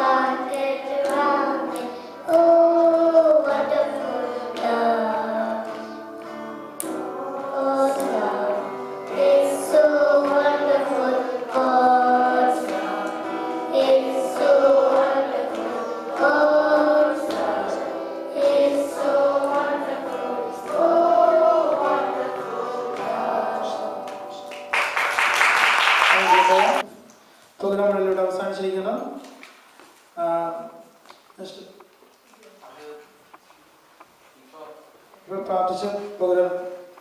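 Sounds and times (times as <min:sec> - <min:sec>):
boy singing into a microphone: 0:00.0 - 0:24.5.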